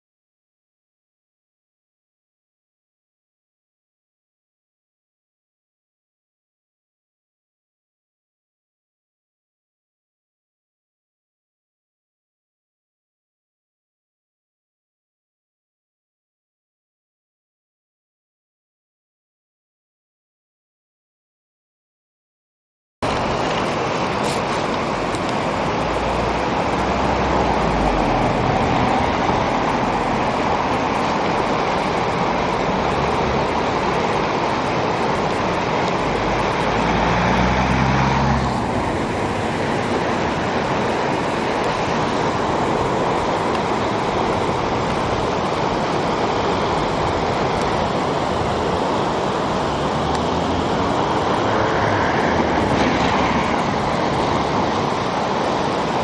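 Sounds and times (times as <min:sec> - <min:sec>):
water rushing over rapids: 0:23.0 - 0:56.0.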